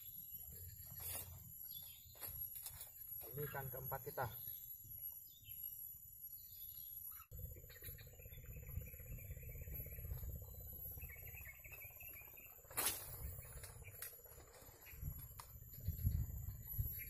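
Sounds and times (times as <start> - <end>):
low microphone rumble: 7.3 - 17.0.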